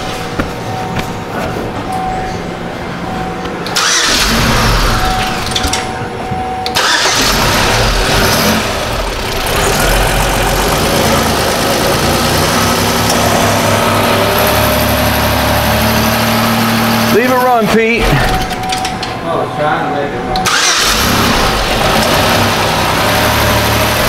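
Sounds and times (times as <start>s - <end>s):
car engine starting and stalling: 3.6s - 6.0s, 6.6s - 19.1s, 20.4s - 24.0s.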